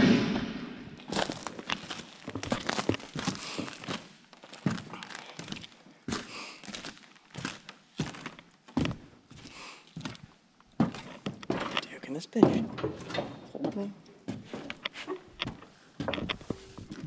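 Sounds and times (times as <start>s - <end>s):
footsteps crunching debris: 0.8s - 12.8s, 14.3s - 17.0s.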